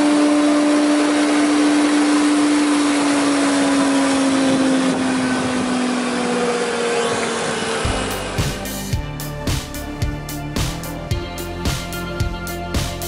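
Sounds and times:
planer motor winding down: 0.0 - 9.2.

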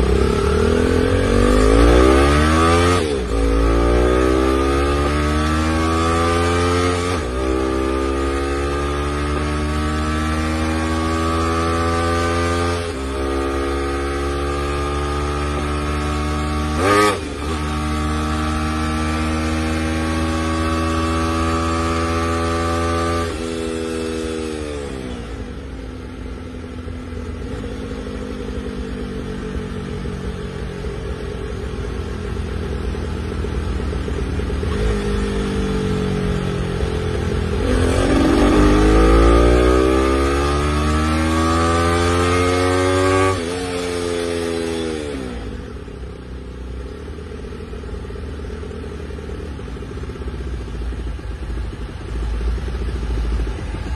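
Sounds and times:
motorcycle engine revving: 0.0 - 53.9
motorcycle engine idling: 25.4 - 38.8, 45.6 - 53.9.

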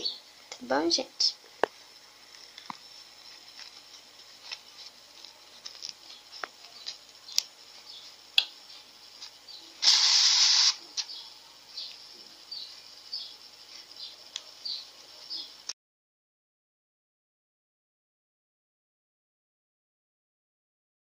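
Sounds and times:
loud hissing rasp: 9.5 - 11.2.

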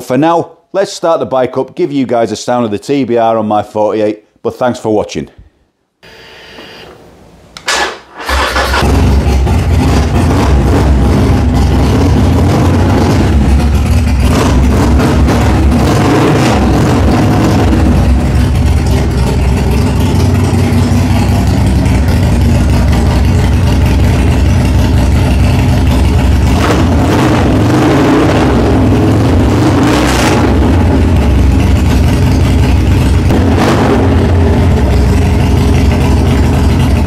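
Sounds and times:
motorcycle engine idling: 13.2 - 14.7, 17.8 - 26.6, 30.7 - 33.3, 34.2 - 37.0.

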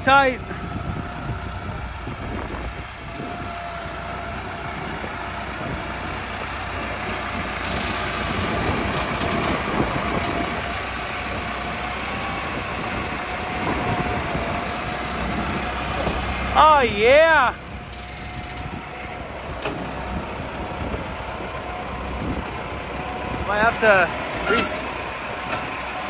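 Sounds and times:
tractor engine running: 0.0 - 26.0
wind buffeting microphone: 0.4 - 26.0.

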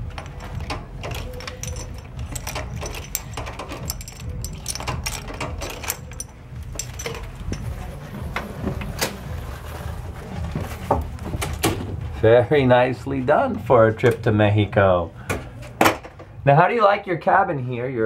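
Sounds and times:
keys jangling and clicking: 0.0 - 7.9
low steady hum: 0.0 - 17.9.

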